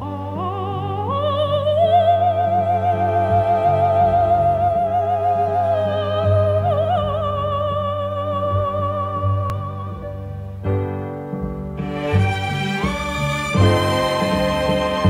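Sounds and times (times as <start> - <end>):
operatic music with vibrato melody: 11.7 - 15.0.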